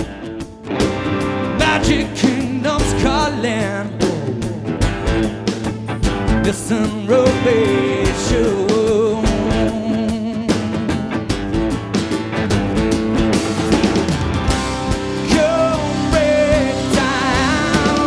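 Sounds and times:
rock band playing: 0.0 - 18.0
man singing: 1.5 - 4.9, 6.2 - 11.0, 15.2 - 18.0.

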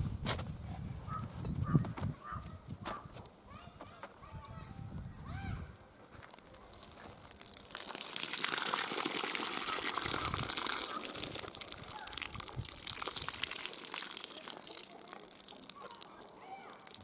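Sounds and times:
water poured onto ground: 6.2 - 17.0
water splashing in a metal pot: 6.6 - 17.0.

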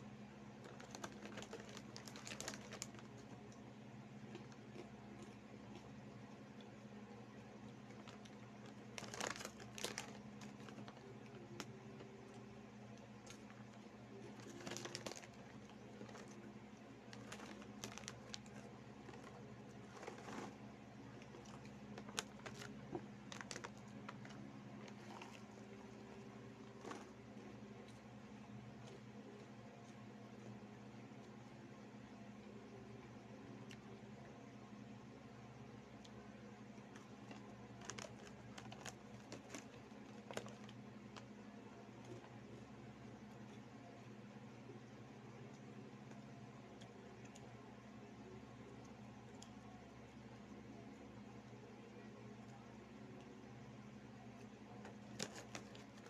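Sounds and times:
faint steady hum: 0.0 - 56.0
crunchy snacks being chewed: 0.6 - 3.6, 4.2 - 6.8, 7.6 - 28.1, 36.8 - 41.4, 54.4 - 56.0
plastic snack bag crinkling: 0.6 - 3.6, 7.7 - 27.5, 36.8 - 41.4, 54.8 - 56.0.

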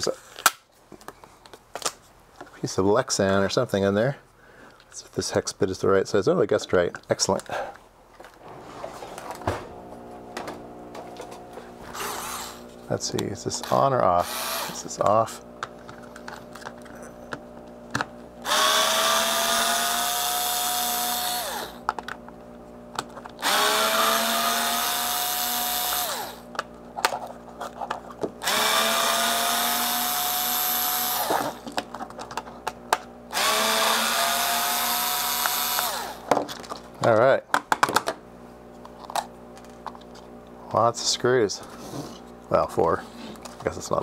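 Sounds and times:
cordless drill whining: 9.6 - 12.7, 13.6 - 15.1, 18.4 - 21.9, 23.4 - 26.5, 28.4 - 31.7, 33.3 - 36.3.

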